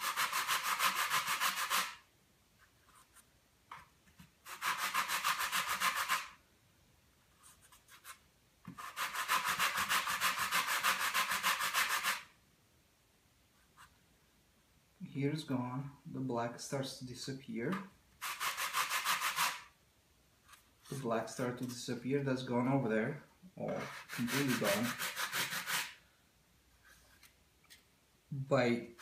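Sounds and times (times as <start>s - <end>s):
sandpaper rubbing on wood: 0.0s - 2.0s, 4.4s - 6.4s, 8.8s - 12.3s, 18.2s - 19.7s, 23.7s - 26.0s.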